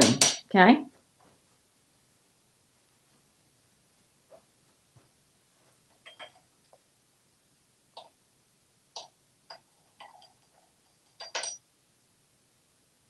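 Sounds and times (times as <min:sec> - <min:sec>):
metal spoon clinking on countertop: 0:11.2 - 0:11.6.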